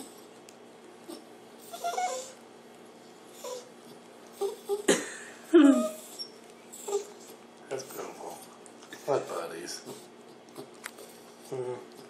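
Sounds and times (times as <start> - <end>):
small dog whining: 1.1 - 2.4, 3.3 - 4.9, 5.6 - 7.4.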